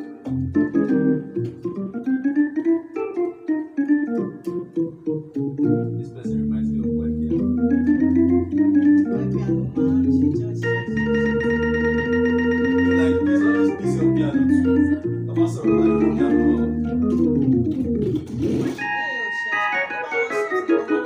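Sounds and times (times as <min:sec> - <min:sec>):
electronic organ chords: 0:00.0 - 0:21.0
low bass line: 0:05.7 - 0:18.4.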